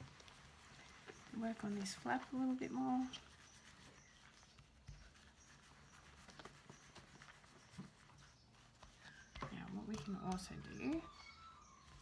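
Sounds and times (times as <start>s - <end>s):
faint wet rubbing: 0.0s - 12.0s.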